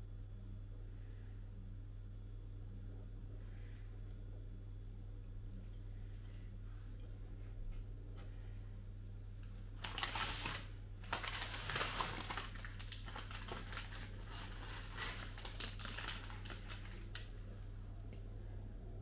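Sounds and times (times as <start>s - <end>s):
baking paper crinkling: 9.4s - 17.6s.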